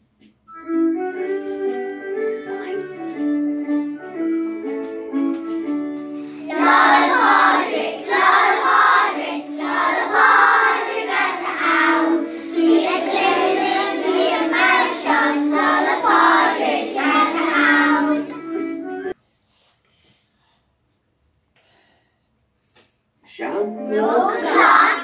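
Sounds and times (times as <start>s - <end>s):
instrumental backing track: 0.1s - 19.2s
children singing together: 6.2s - 18.8s, 23.9s - 25.0s.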